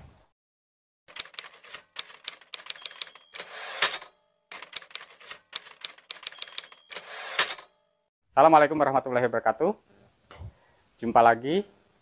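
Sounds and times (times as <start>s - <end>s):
typewriter carriage return: 1.1s - 7.7s
typewriter key strikes: 1.1s - 7.7s
typewriter bell ding: 2.6s - 4.1s, 6.1s - 7.8s.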